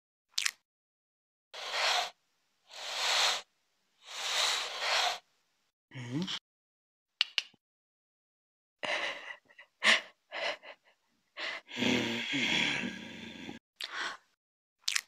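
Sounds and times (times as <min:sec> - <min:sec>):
breathy vocal sounds: 0:05.9 - 0:06.4, 0:11.4 - 0:14.4.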